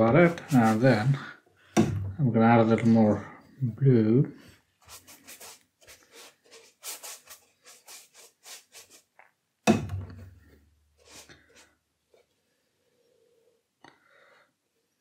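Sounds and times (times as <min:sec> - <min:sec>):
brush scrubbing across paper: 0:00.0 - 0:01.2, 0:04.8 - 0:09.1, 0:11.0 - 0:11.7
sharp knock: 0:09.7 - 0:10.2.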